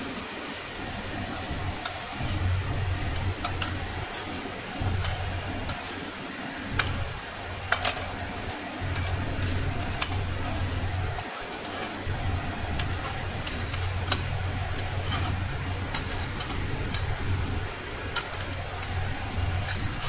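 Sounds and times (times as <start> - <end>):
low hum: 0.2 - 20.0
metal spoon scraping a pan: 0.9 - 20.0.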